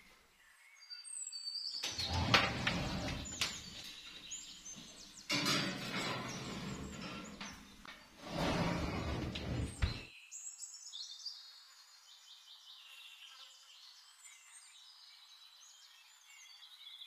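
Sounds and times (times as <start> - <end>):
glass dish scraping on oven rack: 2.0 - 3.6, 5.3 - 10.1.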